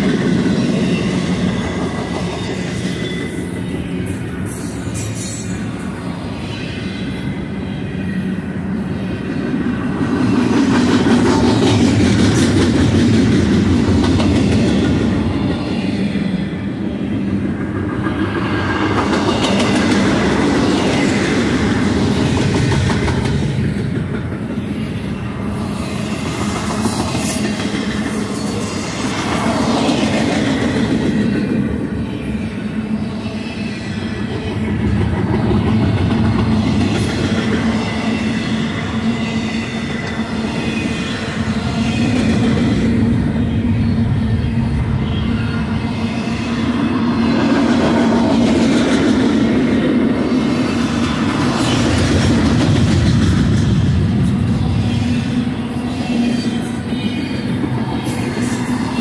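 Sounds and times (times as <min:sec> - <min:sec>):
steel wheels clacking over rail joints: 0:17.5 - 0:32.8.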